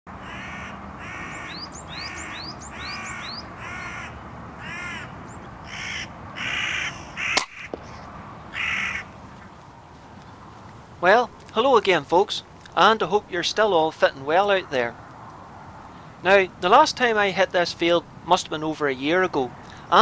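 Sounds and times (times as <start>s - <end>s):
crow cawing: 0.2s - 7.8s, 8.5s - 9.2s.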